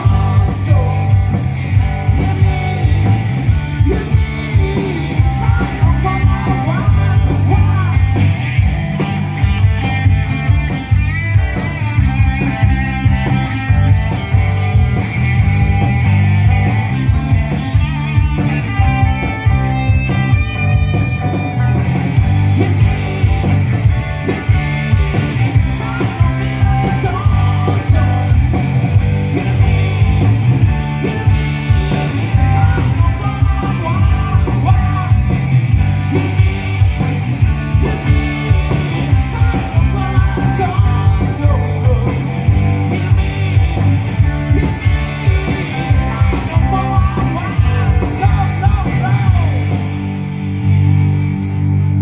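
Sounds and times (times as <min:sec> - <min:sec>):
man singing into a microphone: 0:00.0 - 0:01.4, 0:03.8 - 0:08.3, 0:25.7 - 0:28.6, 0:29.3 - 0:30.4, 0:32.3 - 0:35.4, 0:39.1 - 0:42.3, 0:44.5 - 0:49.7
rock band playing loudly: 0:00.0 - 0:52.0.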